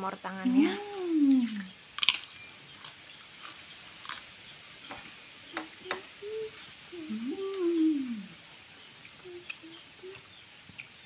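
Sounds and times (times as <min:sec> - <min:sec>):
clicks and crackles of eating by hand: 0:02.0 - 0:06.1, 0:09.0 - 0:11.0
rising and falling call: 0:05.5 - 0:08.4, 0:09.1 - 0:10.2.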